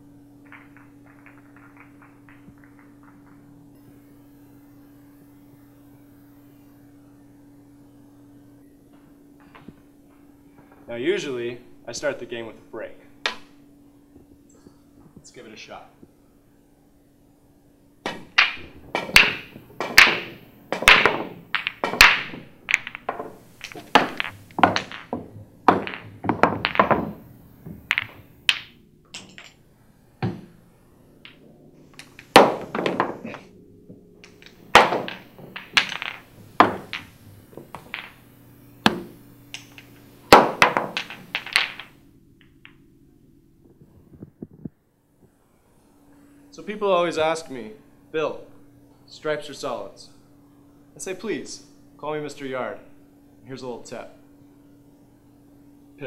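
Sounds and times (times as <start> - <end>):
pool balls clacking: 0.0 - 5.1, 8.9 - 14.4, 18.0 - 44.6.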